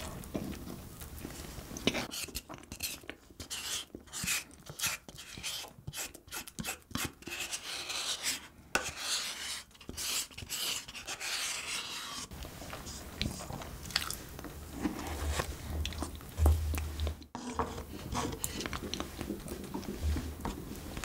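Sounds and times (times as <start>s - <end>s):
wooden spoon scraping paper cup: 1.9s - 13.6s, 17.4s - 21.0s
mouth chewing soft food: 12.4s - 17.3s, 18.3s - 20.5s.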